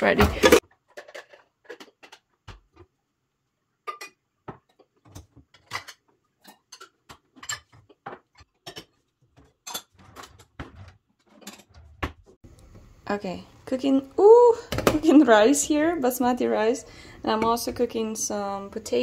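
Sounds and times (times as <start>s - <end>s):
pots and utensils clinking: 0.2s - 2.2s, 3.8s - 12.2s.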